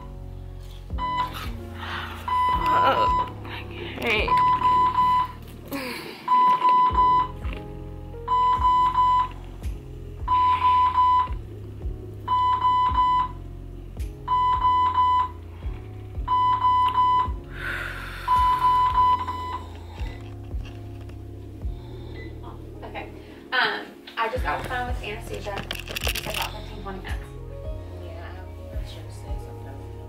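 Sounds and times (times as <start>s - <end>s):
high alarm beeps: 1.0s - 1.5s, 2.2s - 3.4s, 4.2s - 5.4s, 6.3s - 7.4s, 8.3s - 9.3s, 10.3s - 11.4s, 12.3s - 13.4s, 14.3s - 15.4s, 16.2s - 17.4s, 18.3s - 19.7s.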